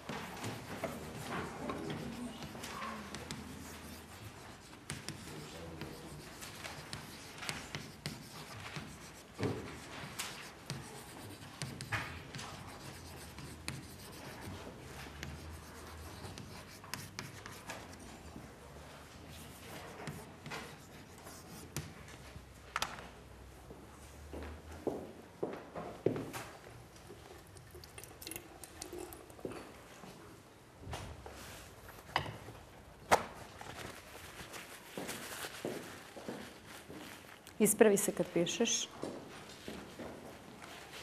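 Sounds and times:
pens scratching on paper: 0:00.1 - 0:22.2
chalk scratching on chalkboard: 0:00.3 - 0:22.0.

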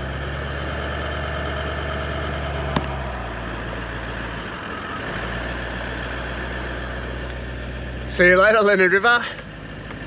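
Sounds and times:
car engine running at low revs: 0:00.0 - 0:10.0.

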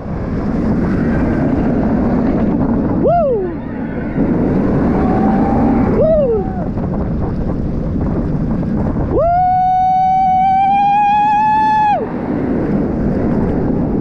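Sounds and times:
wind rushing on roller coaster: 0:00.0 - 0:14.0
rider screaming: 0:03.0 - 0:06.7
rider whooping: 0:03.0 - 0:06.8, 0:09.1 - 0:12.2.

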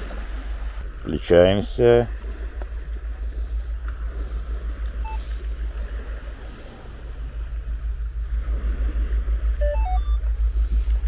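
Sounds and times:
low rapidly pulsing hum: 0:00.0 - 0:11.0
metal detector beep: 0:05.0 - 0:05.3, 0:09.6 - 0:10.3.

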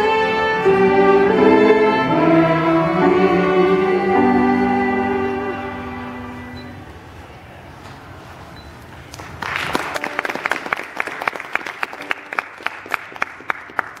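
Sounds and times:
audience applause: 0:09.1 - 0:14.0.

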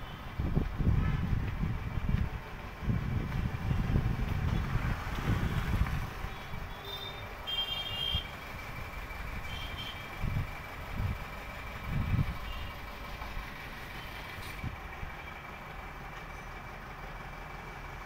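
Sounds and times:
wind buffeting microphone: 0:00.3 - 0:06.7, 0:10.2 - 0:12.5.

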